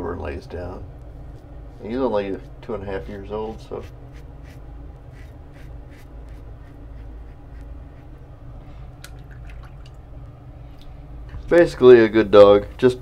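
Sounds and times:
steady low hum: 0.0 - 13.0
razor scraping stubble: 1.8 - 8.2.

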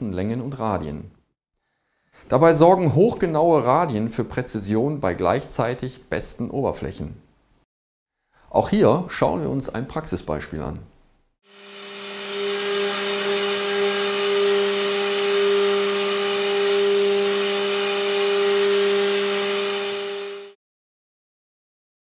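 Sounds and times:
milling machine cutting metal: 11.5 - 20.6.

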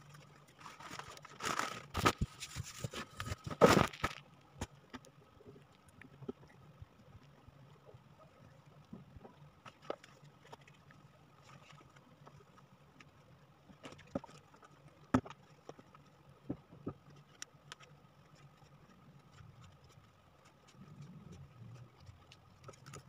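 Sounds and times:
faint low hum: 0.0 - 23.0
hands tapping and rustling wallpaper: 0.9 - 4.2.

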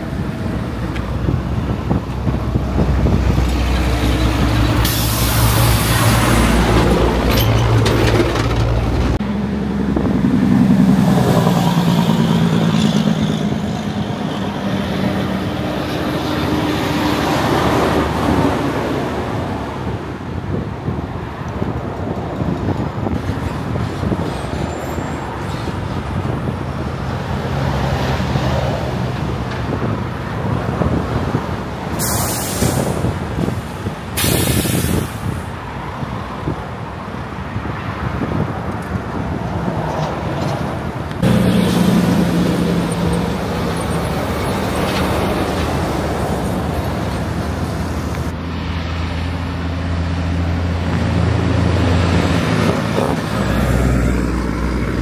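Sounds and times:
diesel trucks passing: 0.0 - 55.0
road noise: 0.0 - 55.0
air brake hisses: 4.8 - 5.9, 32.0 - 33.1, 34.2 - 35.3.

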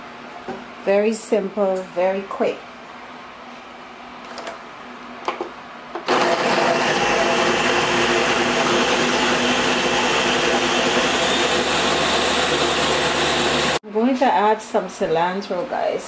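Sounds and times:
blender motor running: 6.1 - 13.8.

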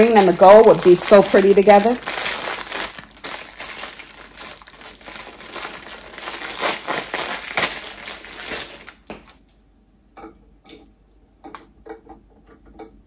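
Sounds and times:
wrapping crumpling: 0.0 - 9.4.

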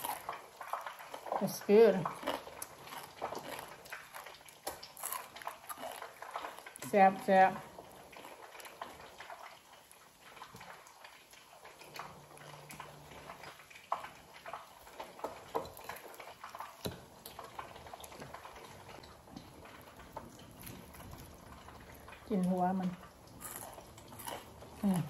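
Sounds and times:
fried fish crackling as torn: 0.0 - 1.4, 2.0 - 6.9
chewing and crunching fried fish: 0.0 - 25.0.

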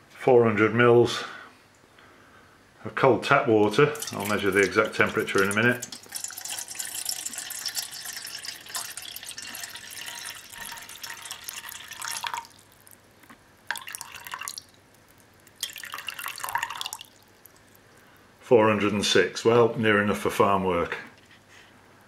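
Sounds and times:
water pouring into saucepan: 4.0 - 13.0, 13.7 - 17.9.

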